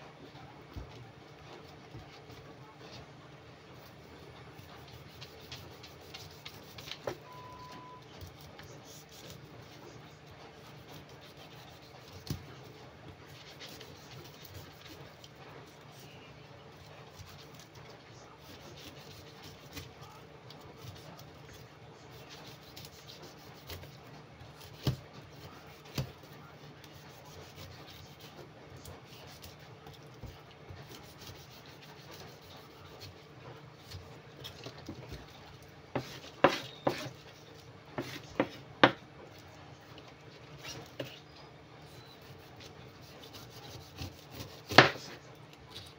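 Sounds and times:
knife slicing pineapple rind: 0:04.6 - 0:07.2, 0:10.5 - 0:16.2, 0:18.4 - 0:35.3, 0:36.0 - 0:39.4, 0:41.9 - 0:45.9.

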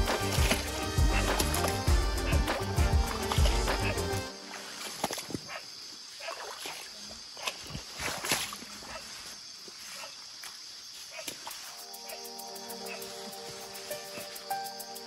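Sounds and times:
footsteps wading through stream: 0:00.0 - 0:11.8
steady high-pitched hiss: 0:09.2 - 0:15.0.

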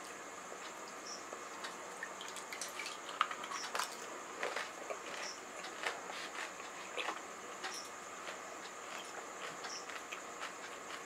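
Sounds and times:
crisp food crunching: 0:02.6 - 0:07.2.

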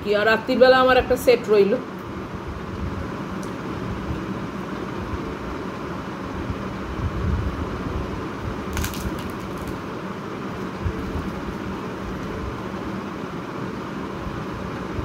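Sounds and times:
background hum: 0:00.0 - 0:15.0
fingers tearing bread: 0:08.7 - 0:09.8.

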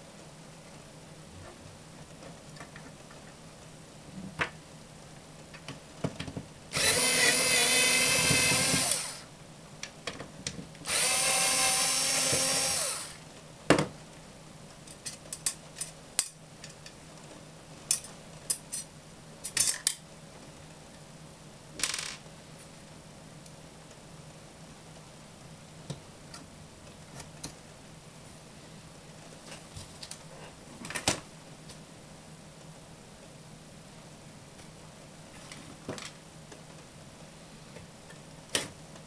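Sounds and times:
electric screwdriver motor whine: 0:06.8 - 0:09.2, 0:10.9 - 0:13.2.

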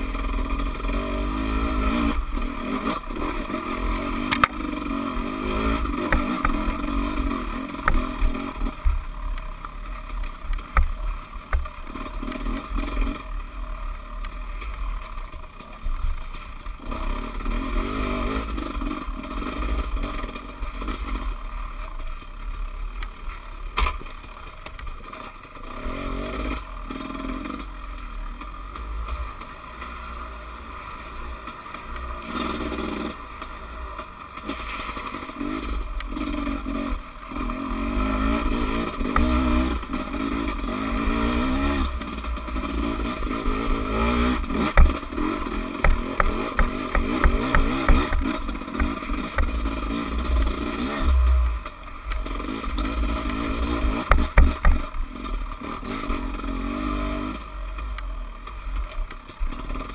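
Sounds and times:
dirt bike engine revving: 0:00.0 - 0:15.4, 0:16.3 - 0:21.9, 0:25.1 - 0:59.9
bike knocks and rattles: 0:23.6 - 0:25.0, 0:44.0 - 0:49.7, 0:52.8 - 0:55.2.

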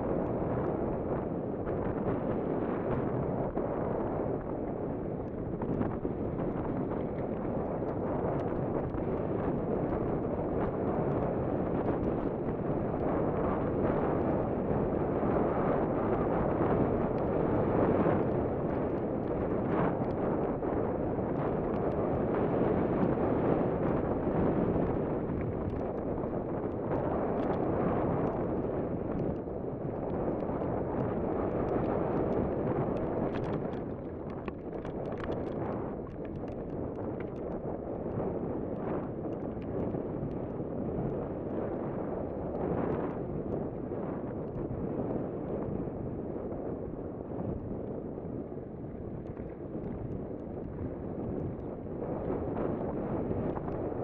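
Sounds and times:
wind rushing over microphone: 0:00.0 - 0:54.0
faint ticks: 0:30.0 - 0:40.5.

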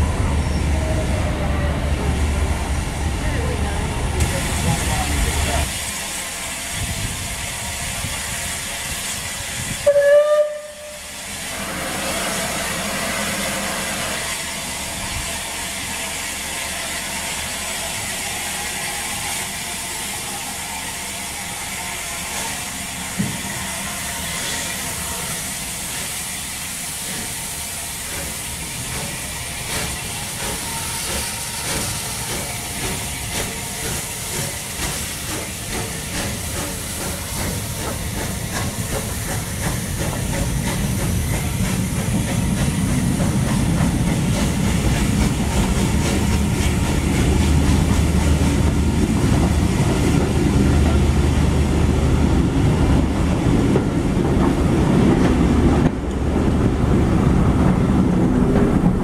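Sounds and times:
steam hissing: 0:00.0 - 0:59.0
steam locomotive chuffing: 0:00.0 - 0:59.0
steam locomotive whistle: 0:09.8 - 0:11.2.

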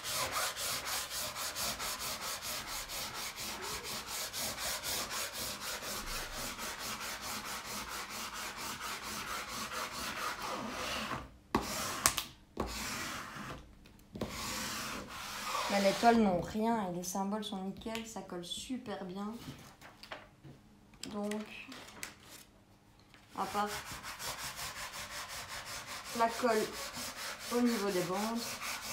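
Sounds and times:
rubbing over paper sheet: 0:14.2 - 0:16.2, 0:23.4 - 0:28.9.

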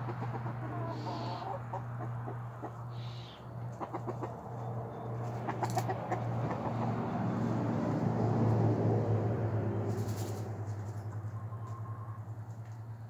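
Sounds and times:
chickens clucking: 0:00.0 - 0:07.5, 0:09.9 - 0:12.7.

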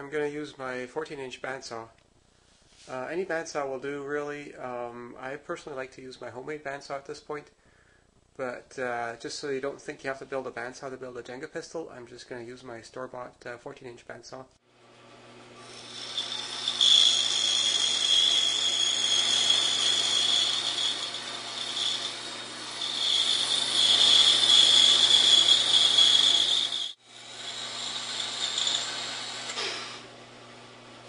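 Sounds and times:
motor hum: 0:14.8 - 0:31.0
bandsaw cutting wood: 0:15.5 - 0:30.0
high-pitched cutting whine: 0:15.7 - 0:29.8.

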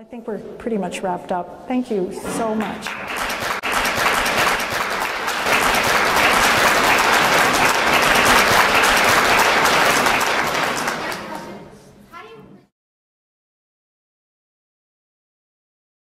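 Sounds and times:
audience applauding: 0:02.3 - 0:11.5.

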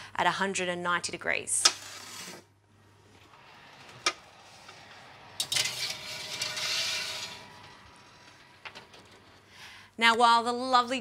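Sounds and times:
metal tray scraping wire rack: 0:01.6 - 0:02.5, 0:03.3 - 0:09.4.

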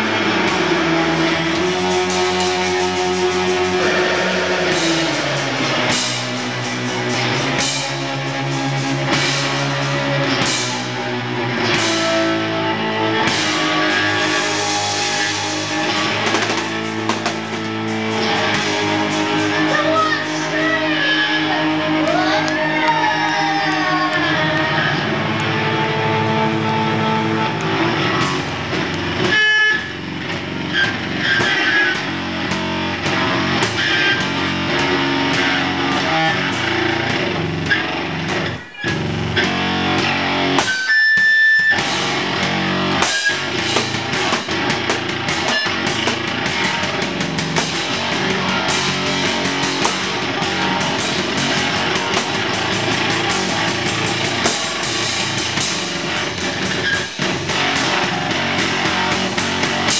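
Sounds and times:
drum kit: 0:00.0 - 0:59.9
electric guitar: 0:00.0 - 0:59.9.

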